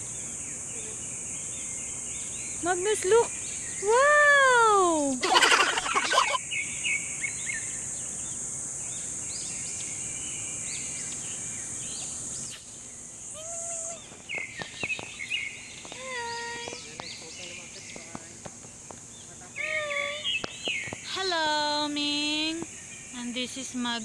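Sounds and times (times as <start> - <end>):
high-pitched insect drone: 0.0 - 24.0
bird chirps: 5.8 - 21.2.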